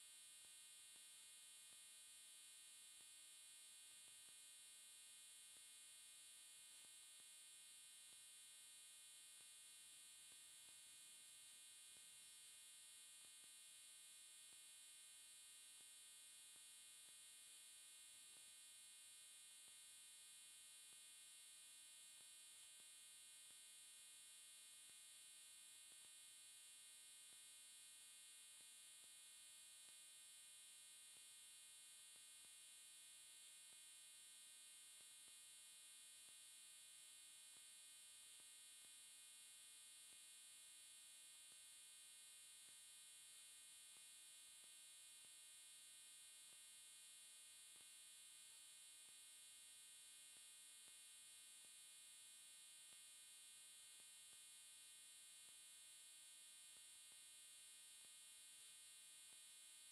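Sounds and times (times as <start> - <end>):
faint electronic hum and hiss: 0.0 - 59.9.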